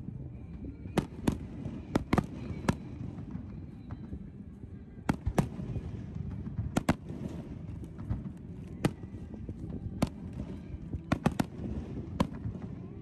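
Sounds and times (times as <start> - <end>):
low background rumble: 0.0 - 13.0
fireworks bangs: 0.8 - 4.3, 5.0 - 13.0.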